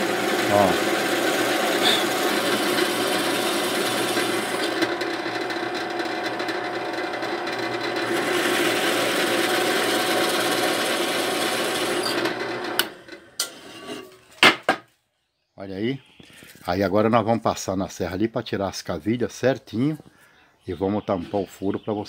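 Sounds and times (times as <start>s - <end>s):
cutter rasping in wood: 0.0s - 12.9s
drill press motor hum: 0.0s - 13.4s.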